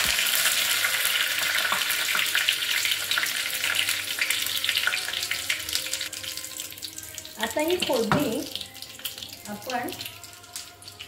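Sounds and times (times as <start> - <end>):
spices sizzling in hot oil: 0.0 - 11.0.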